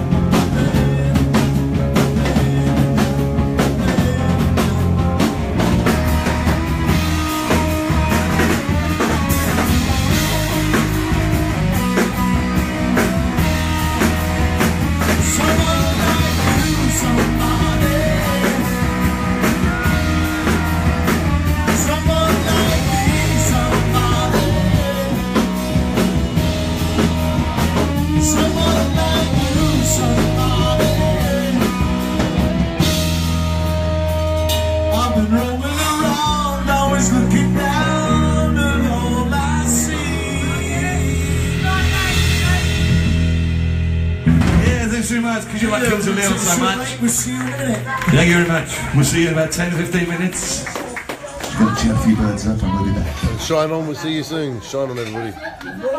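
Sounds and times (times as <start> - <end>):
person singing: 0.0 - 33.0, 34.7 - 43.2
live rock band playing: 0.0 - 54.1.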